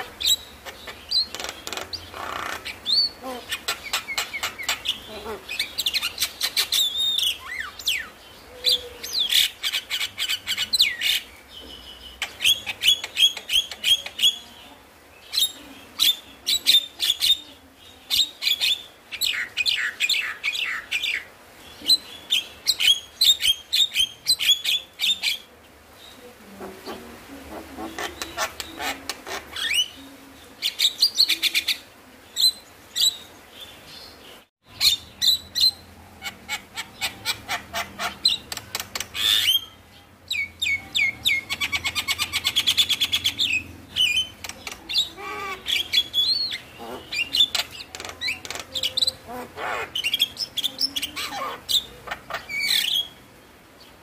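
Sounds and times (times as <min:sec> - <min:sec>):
bird chattering and whistling: 0:00.0 - 0:11.2, 0:26.8 - 0:30.0, 0:34.7 - 0:53.2.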